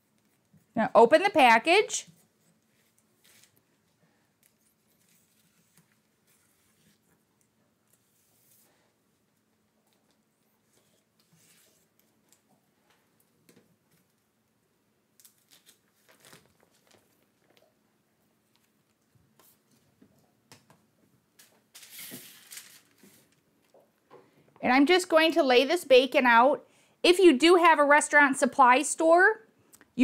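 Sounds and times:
parchment paper crinkling: 2.2s - 8.8s, 15.1s - 17.8s, 21.4s - 23.4s.

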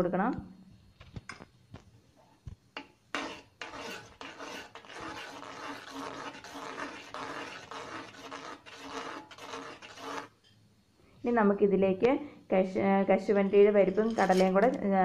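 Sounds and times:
metal ladle scraping a pan: 3.1s - 10.5s, 13.4s - 14.8s.

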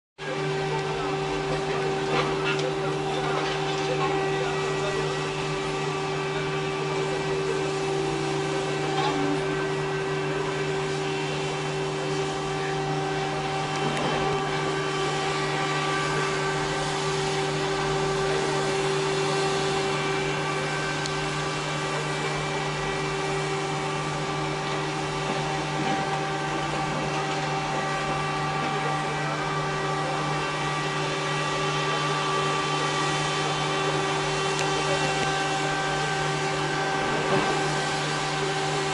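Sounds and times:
engine running steadily: 0.2s - 38.9s.

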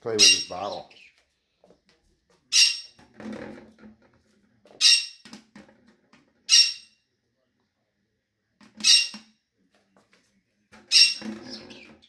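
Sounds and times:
parrot squawks: 0.1s - 0.9s, 2.5s - 3.0s, 4.8s - 5.2s, 6.5s - 7.0s, 8.8s - 9.3s, 10.9s - 11.9s
plastic bottle knocking on floor: 3.0s - 4.1s.

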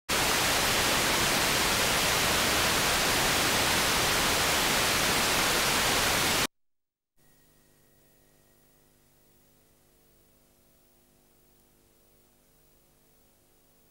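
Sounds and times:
videotape static hiss: 0.1s - 6.5s
faint low hum: 7.2s - 13.9s.

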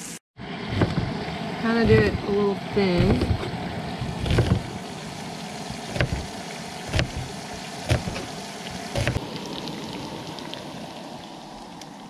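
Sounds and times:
knife knocking on cutting board: 6.9s - 7.3s.

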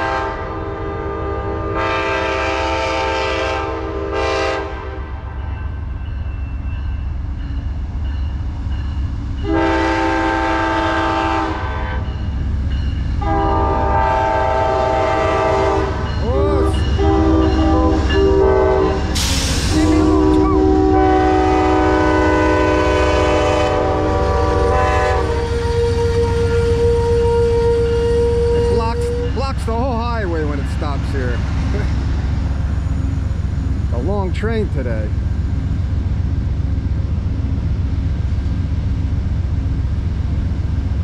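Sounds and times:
train air horn blasts: 0.0s - 5.3s, 9.4s - 12.1s, 13.2s - 29.4s
diesel locomotive rumble: 0.0s - 41.0s
air hiss: 19.0s - 20.1s.

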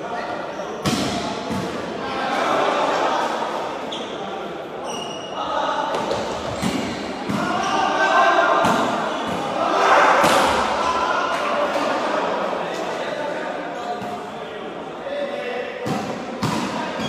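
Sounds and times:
players calling out: 0.1s - 17.0s
volleyball slaps: 0.8s - 1.8s, 5.9s - 7.6s, 8.6s - 9.6s, 10.2s - 11.5s, 15.8s - 17.0s.

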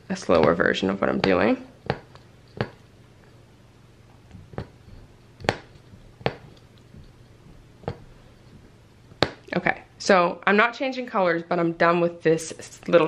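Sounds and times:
punch needle popping through fabric: 5.4s - 6.6s.

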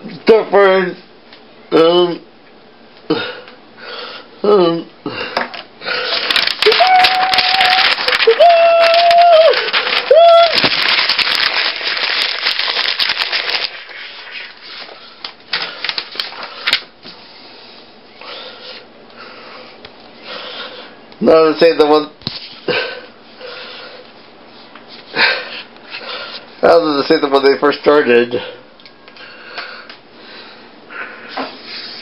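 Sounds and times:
paper rustling: 5.9s - 17.3s.

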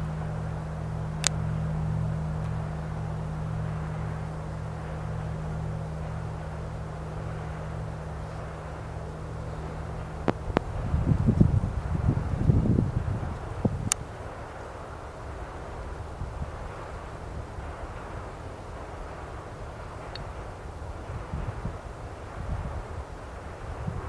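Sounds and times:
low thumps: 0.0s - 14.6s.

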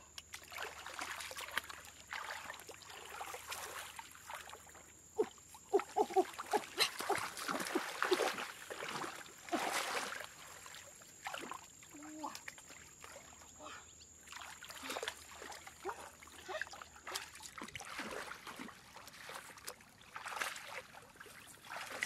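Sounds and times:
hands splashing in shallow water: 6.0s - 10.4s.

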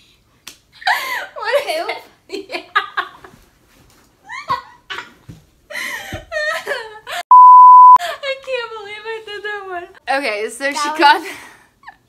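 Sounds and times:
woman laughing: 5.8s - 7.2s.

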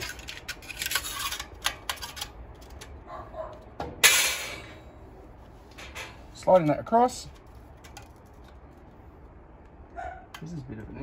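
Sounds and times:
light metal clicks and scrapes: 0.0s - 3.0s.

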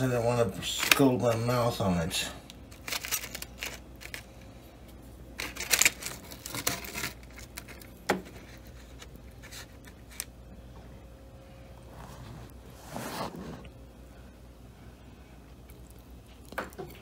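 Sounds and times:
foil crinkle: 2.7s - 4.5s, 5.4s - 10.3s.

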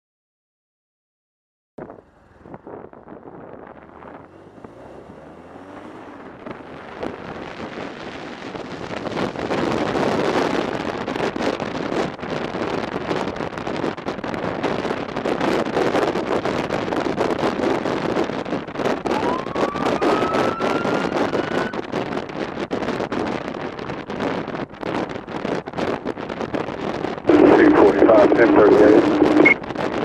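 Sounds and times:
motorcycle engine accelerating: 1.8s - 21.9s
wind buffeting microphone: 1.8s - 30.0s.

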